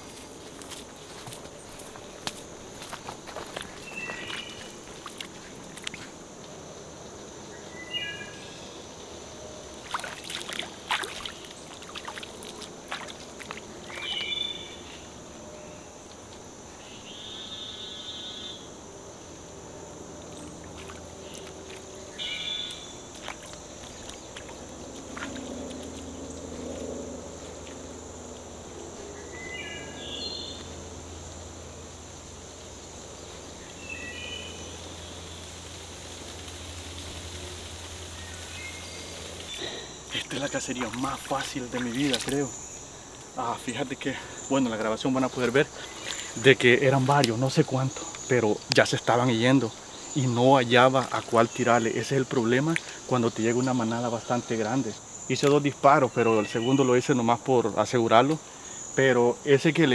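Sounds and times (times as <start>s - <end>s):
bare feet splashing in mud: 0.0s - 6.2s, 9.8s - 14.6s, 20.6s - 22.0s, 22.6s - 26.9s, 39.4s - 42.6s, 44.8s - 47.5s
insect drone: 0.0s - 59.9s
bird call: 13.9s - 15.0s.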